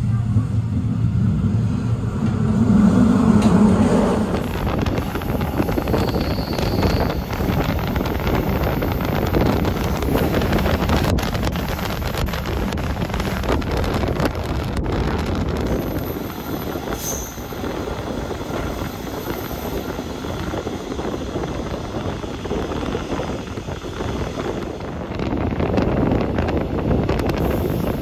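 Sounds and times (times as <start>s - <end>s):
passing train rushing with clicks: 0.0s - 28.0s
train rumble and wheel noise: 0.0s - 28.0s
high squeal: 2.6s - 8.1s, 15.7s - 20.7s.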